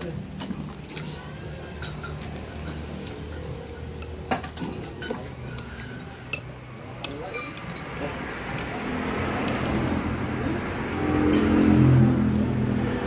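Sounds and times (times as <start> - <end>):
background murmur: 0.0 - 13.0
cutlery clinking against bowl: 3.9 - 8.2.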